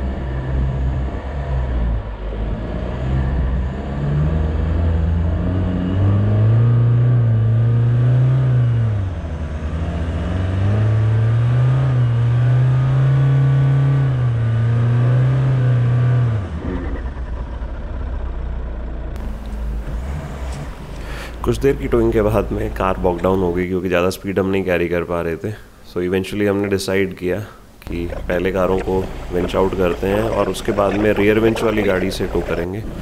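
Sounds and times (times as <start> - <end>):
suv engine revving hard: 0.0 - 17.0, 19.2 - 23.4.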